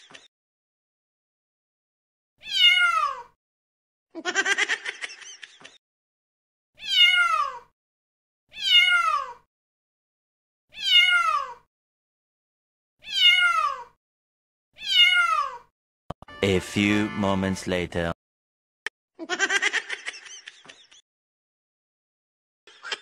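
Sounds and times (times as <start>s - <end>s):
cat meowing: 2.4s - 3.4s, 6.8s - 7.7s, 8.5s - 9.5s, 10.7s - 11.7s, 13.0s - 14.0s, 14.8s - 15.7s.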